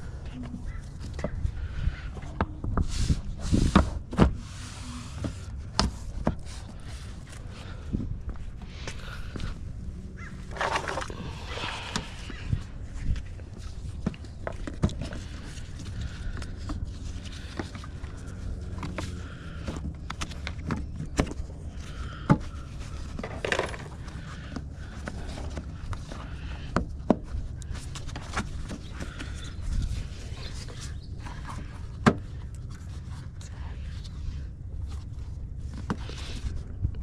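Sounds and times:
low rumble: 6.9 - 14.4.

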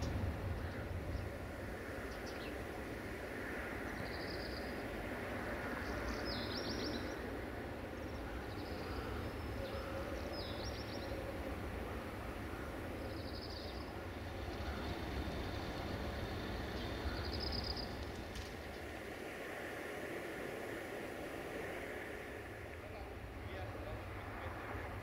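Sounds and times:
steady low rumble: 0.0 - 6.3.

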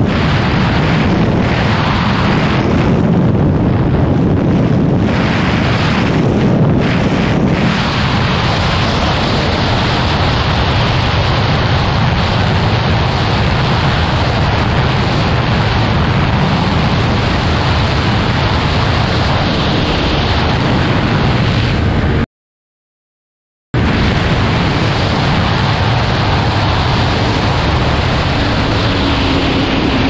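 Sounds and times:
wind rushing over microphone: 0.0 - 22.2, 23.8 - 30.0
motorcycle engine running: 24.4 - 30.0.

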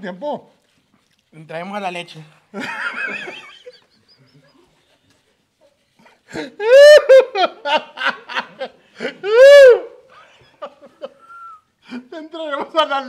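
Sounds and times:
person laughing loudly: 6.3 - 9.9.

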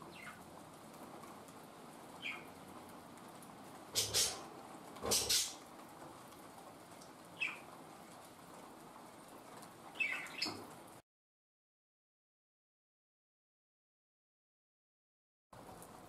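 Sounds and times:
rain hissing: 0.0 - 11.0, 15.6 - 16.0
bird chirping: 0.1 - 0.4, 2.2 - 2.5, 7.4 - 7.6, 10.0 - 10.6.

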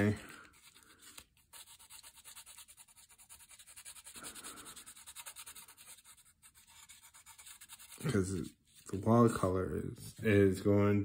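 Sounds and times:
pencil scratching on cardboard: 0.6 - 8.3.

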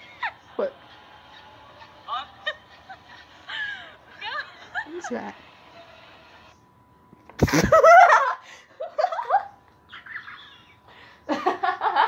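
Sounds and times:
high-pitched giggling: 0.0 - 5.4.

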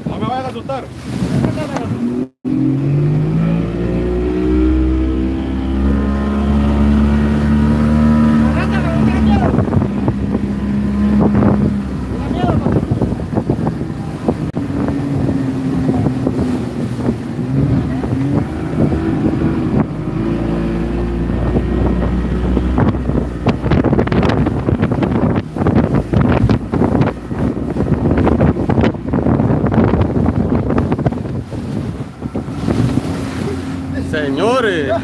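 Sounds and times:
boat hull hitting waves: 0.0 - 35.0
outboard motor running: 0.0 - 35.0
wind buffeting microphone: 0.0 - 35.0.

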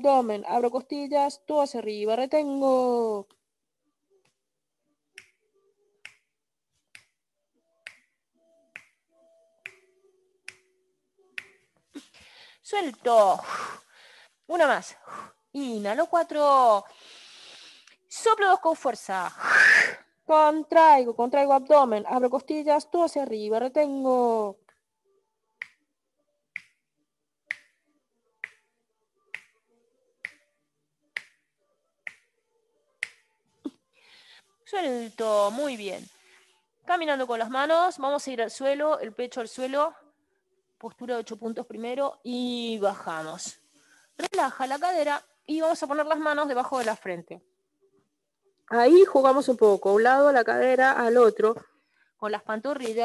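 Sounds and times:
finger snaps: 5.2 - 5.4, 6.0 - 6.3, 6.9 - 7.2, 7.8 - 10.8, 11.4 - 11.8, 25.6 - 25.8, 26.5 - 26.8, 27.5 - 27.8, 28.4 - 28.7, 29.3 - 29.6, 30.2 - 30.5, 31.1 - 32.3, 33.0 - 33.8.

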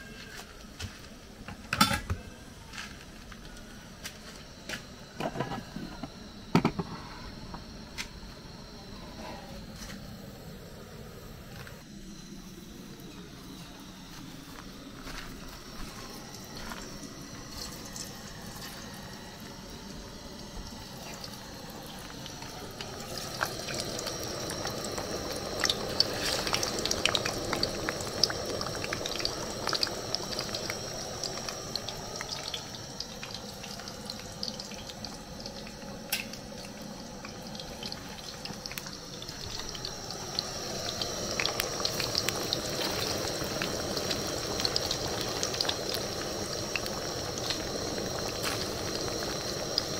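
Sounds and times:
plantain frying in oil: 14.7 - 49.9.

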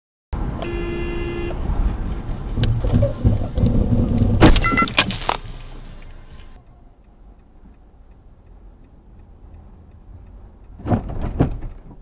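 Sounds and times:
faint regular ticking: 5.9 - 10.8.

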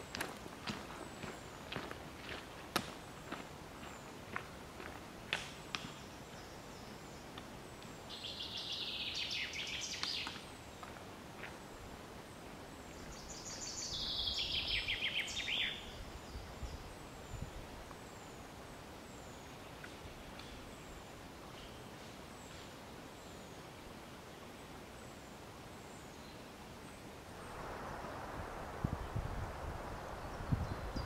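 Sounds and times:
footsteps crunching on leaves: 0.0 - 5.1.

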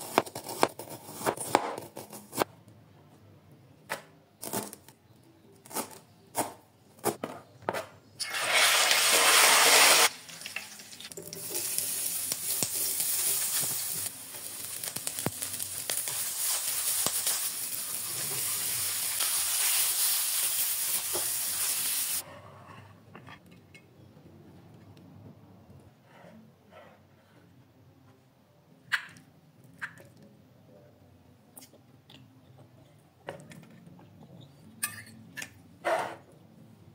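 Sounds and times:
food sizzling in hot pan: 8.2 - 22.2.

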